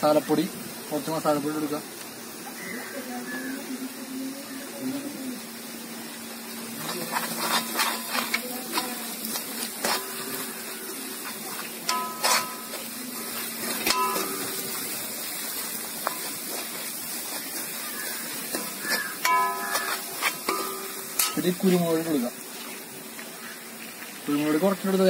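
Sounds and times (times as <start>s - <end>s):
frying sizzle: 0.0s - 25.0s
metal spoon scraping metal pan: 11.9s - 12.9s, 13.6s - 14.8s, 18.5s - 21.8s.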